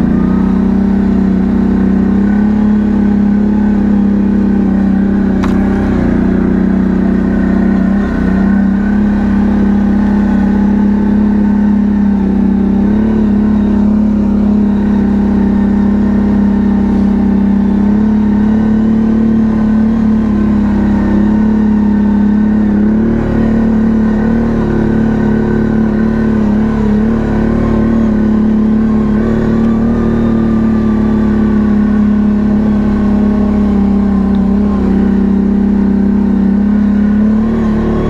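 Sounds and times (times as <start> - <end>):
atv engine droning: 0.0 - 38.0.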